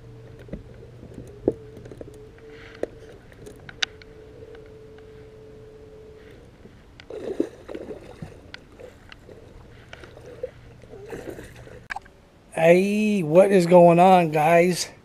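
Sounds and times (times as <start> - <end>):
low hum: 0.0 - 13.3
fish splashing in water: 7.0 - 12.0.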